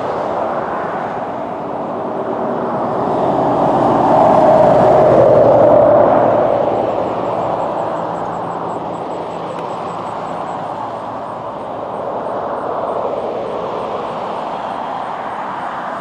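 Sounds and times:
road traffic: 0.0 - 16.0.

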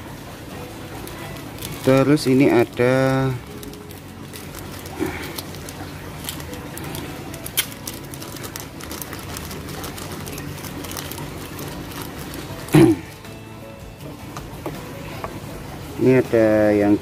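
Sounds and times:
plastic bag crinkling: 0.9 - 13.2.

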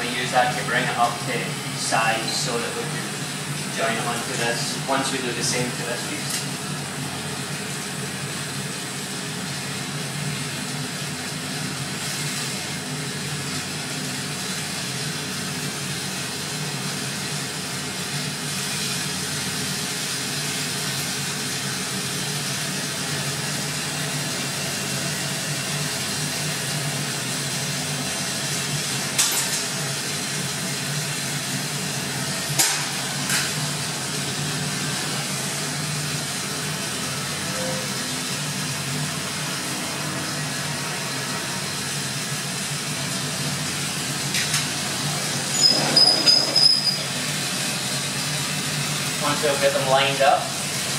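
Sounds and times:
torch flame hissing: 0.0 - 50.9.

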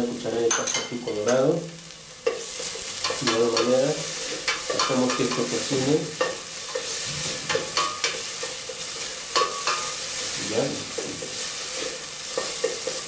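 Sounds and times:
food sizzling in oil: 0.0 - 13.0
wooden spoon scraping a pot: 4.0 - 13.0.

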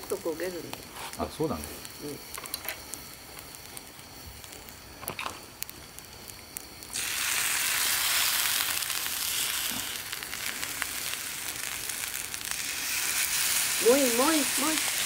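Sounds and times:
faint crackles: 0.0 - 15.0
soy sauce sizzling on griddle: 0.0 - 15.0.

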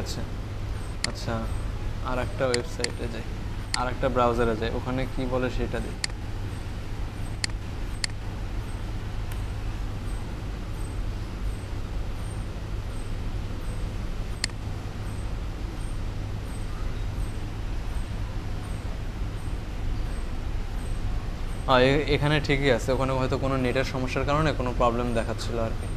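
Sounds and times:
low background rumble and hiss: 0.0 - 25.9
computer mouse clicks: 14.4 - 14.6.

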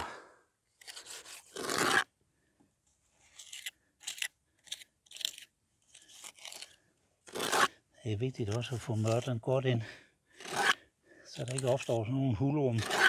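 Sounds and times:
trowel scraping mortar: 0.8 - 2.1, 7.3 - 7.8, 8.5 - 9.4, 10.4 - 10.8, 12.7 - 13.0.

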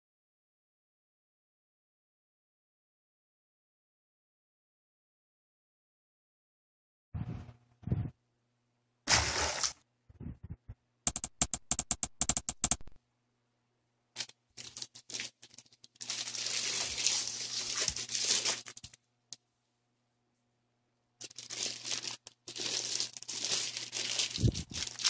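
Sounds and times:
fabric bag rustling: 14.6 - 19.0, 21.2 - 25.0.

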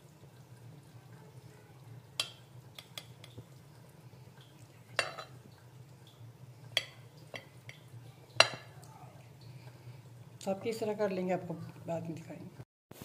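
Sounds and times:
knife clinking against glass plate: 5.0 - 5.3.

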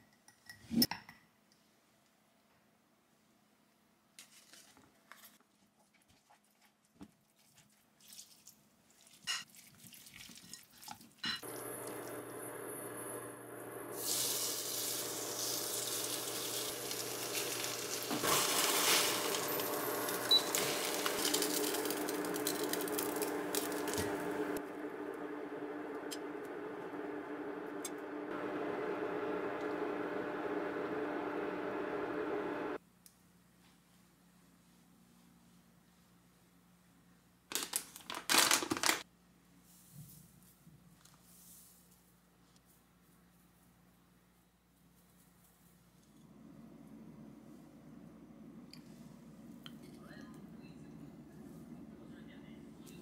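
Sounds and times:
batter frying sizzle: 11.4 - 24.6
steady hum: 16.2 - 32.8.

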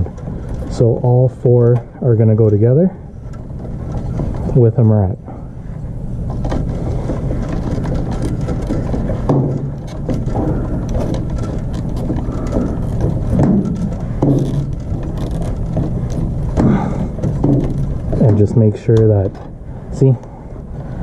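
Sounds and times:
steady low rumble: 0.0 - 21.0
wire nut scraping and clicking: 6.3 - 19.6.

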